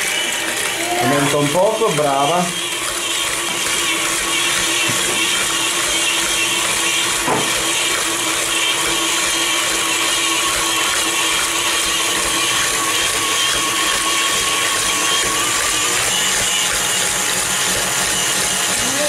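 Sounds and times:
stand mixer motor whine: 0.0s - 19.0s.

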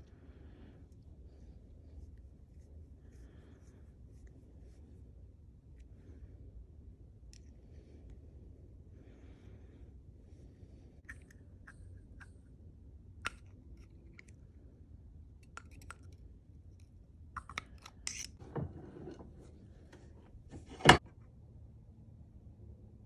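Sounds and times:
scrape on workbench: 18.4s - 21.0s.

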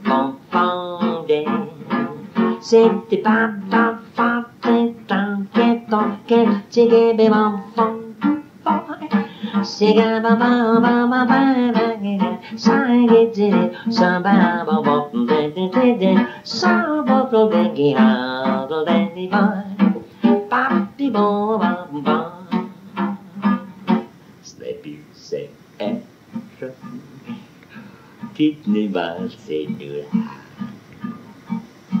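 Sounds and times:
acoustic guitar strumming: 0.0s - 32.0s
man scat singing: 28.2s - 30.8s.

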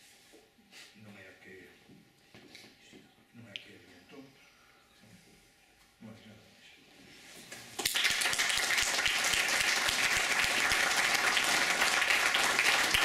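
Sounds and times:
audience applauding: 7.8s - 13.0s.

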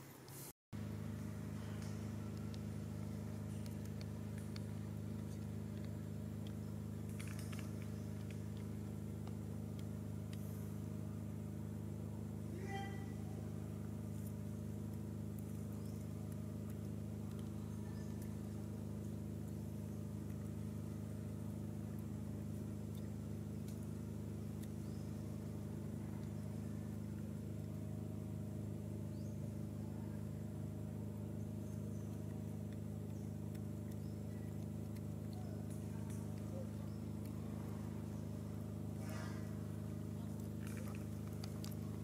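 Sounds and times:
low motor hum: 0.0s - 42.0s
faint high ticks: 1.7s - 10.7s, 22.7s - 25.5s, 31.6s - 37.4s.

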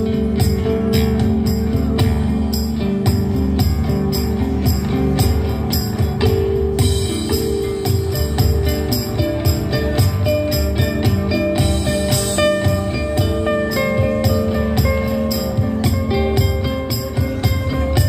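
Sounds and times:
acoustic band playing: 0.0s - 18.0s
jingly percussion strokes: 0.0s - 18.0s.

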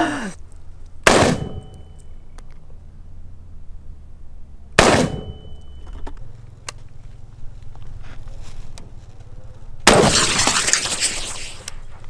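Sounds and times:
rifle shot: 1.0s - 1.7s, 4.8s - 5.4s, 9.8s - 10.7s
short ringing tone: 1.5s - 2.4s, 5.2s - 6.1s.

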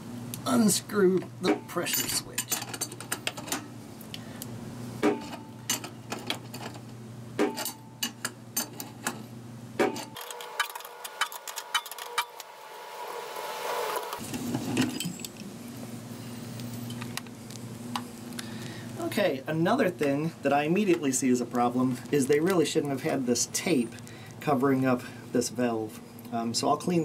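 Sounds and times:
steady low hum: 0.0s - 10.2s, 12.0s - 27.0s
metal tools clinking on fitting: 1.4s - 3.6s, 5.2s - 6.8s, 7.5s - 8.9s.

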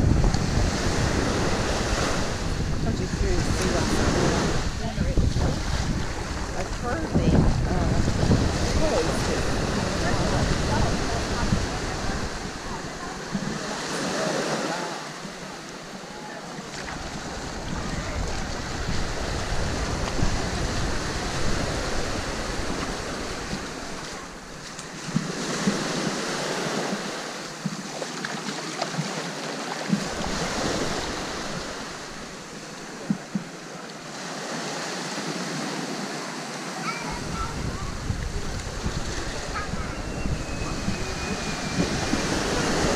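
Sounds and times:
wind rumble on microphone: 0.0s - 14.5s, 16.7s - 27.8s, 29.9s - 33.6s, 36.9s - 42.9s
small waves washing on beach: 0.0s - 42.9s.

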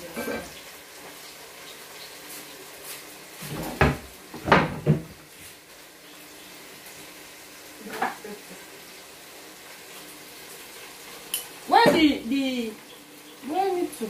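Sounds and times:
cupboard door knocks and bangs: 3.8s - 5.1s.

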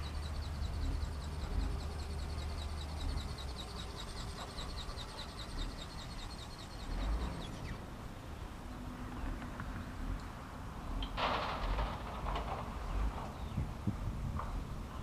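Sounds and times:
falling chirp: 0.0s - 7.9s.

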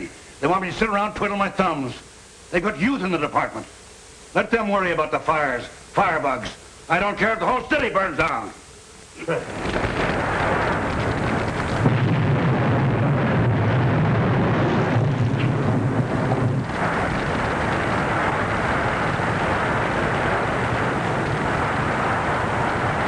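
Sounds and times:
large fire rushing: 9.4s - 23.0s
low rumble: 9.6s - 23.0s.

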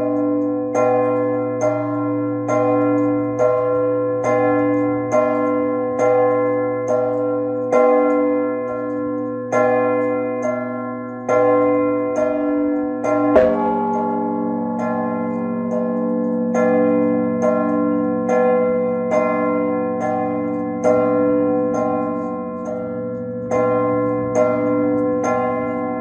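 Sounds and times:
church bells pealing: 0.0s - 26.0s
deep bell hum: 13.4s - 17.3s.

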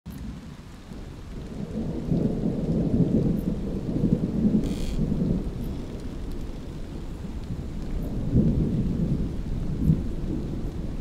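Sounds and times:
low rumbling dark ambience: 3.0s - 11.0s
high hiss: 4.6s - 5.0s.

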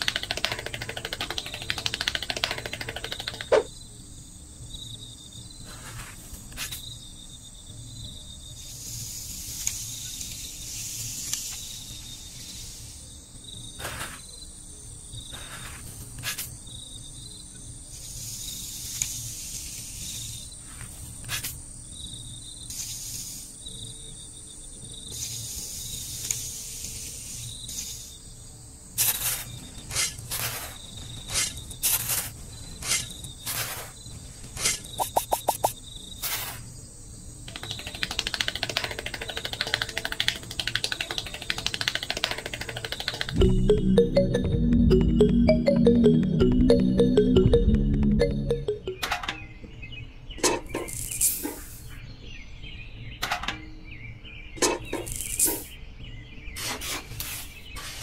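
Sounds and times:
crickets chirping: 3.0s - 15.9s, 16.5s - 42.1s.

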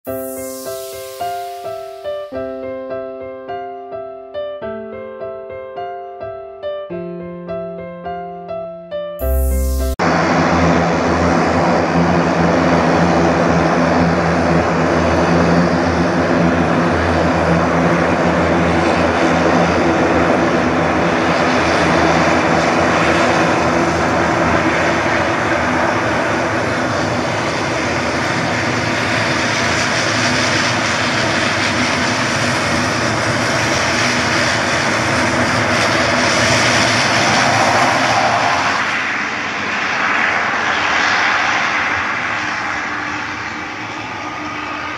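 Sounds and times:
turboprop engines running: 9.2s - 44.9s.

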